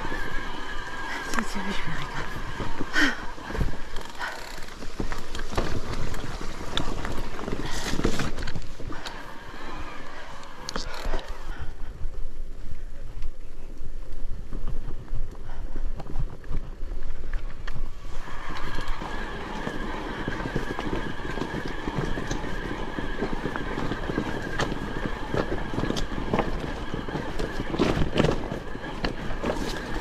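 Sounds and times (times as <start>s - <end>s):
steady high whine: 0.0s - 6.4s, 17.6s - 30.0s
bike tyre rumble and rattles: 0.0s - 30.0s
wind buffeting microphone: 0.0s - 30.0s.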